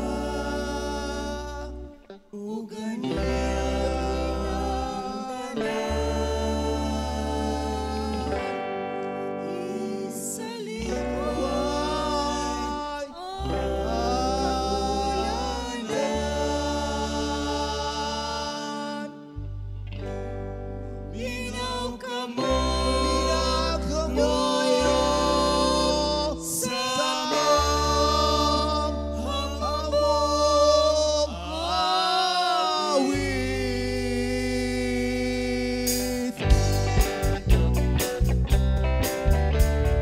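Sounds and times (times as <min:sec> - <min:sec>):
bass notes: 0:00.0 - 0:02.0, 0:03.1 - 0:08.6, 0:10.8 - 0:18.6, 0:19.3 - 0:31.8, 0:33.2 - 0:40.0
woman singing into microphone: 0:00.0 - 0:19.2, 0:21.1 - 0:35.1
guitar chords: 0:00.0 - 0:40.0
drums: 0:35.9 - 0:40.0.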